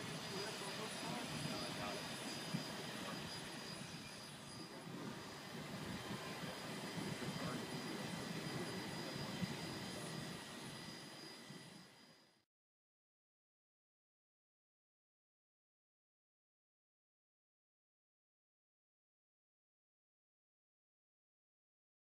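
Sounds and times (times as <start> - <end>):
steam locomotive roar and hiss: 0.0 - 12.4
thin high whine: 0.0 - 12.4.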